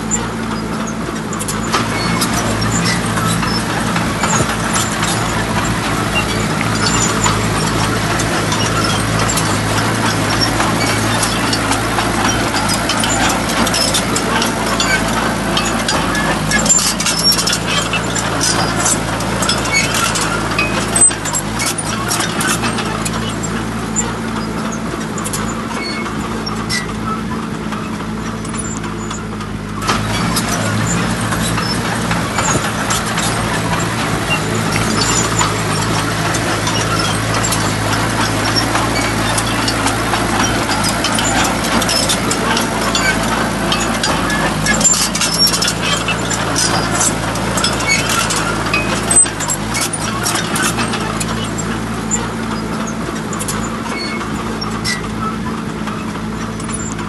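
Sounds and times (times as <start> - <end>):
truck engine running: 0.0 - 57.0
clicks and knocks: 28.4 - 55.6.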